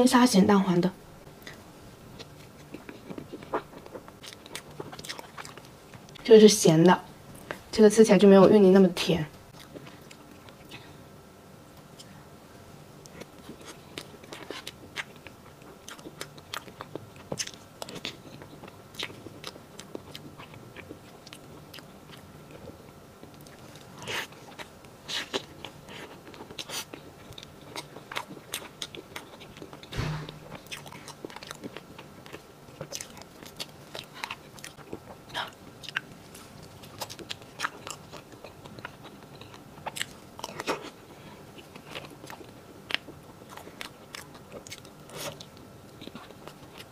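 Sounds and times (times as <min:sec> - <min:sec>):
chewing with wet smacks: 0:02.2 - 0:07.6, 0:09.5 - 0:10.9, 0:13.0 - 0:29.9, 0:30.5 - 0:46.9
thump: 0:29.9 - 0:30.6.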